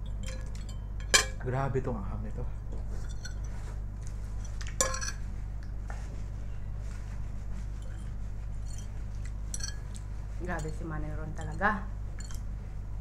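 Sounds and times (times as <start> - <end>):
metal fork clinking on plate: 0.0 - 1.4, 3.0 - 3.6, 4.4 - 5.2, 9.5 - 10.0, 12.2 - 12.4
steady low hum: 0.0 - 13.0.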